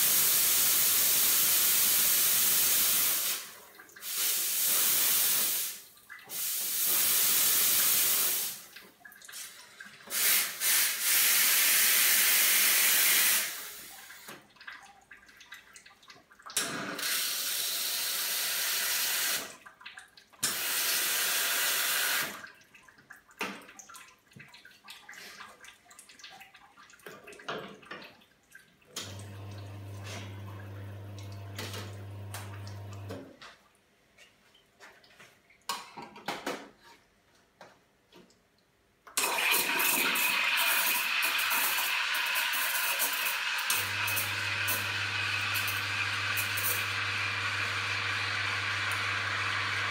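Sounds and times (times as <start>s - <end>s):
steam hissing from espresso machine: 0.0s - 3.4s, 6.4s - 8.6s, 10.1s - 13.8s, 20.5s - 22.3s, 39.5s - 49.9s
pump humming: 29.0s - 33.1s, 43.7s - 49.9s.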